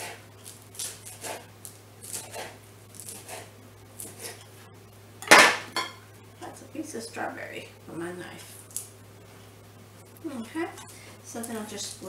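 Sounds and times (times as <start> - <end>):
knife slicing lettuce on board: 0.0 - 4.4.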